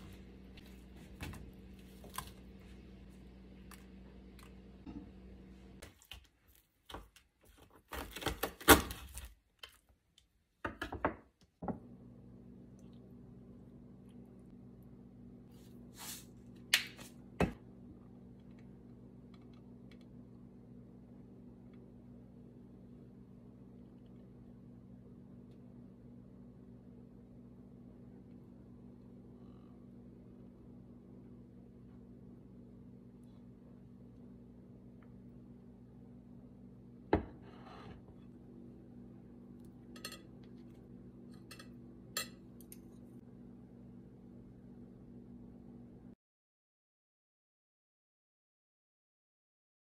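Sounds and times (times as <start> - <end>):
low steady hum: 0.0 - 46.2
cutlery clinking on a plate: 40.0 - 40.3.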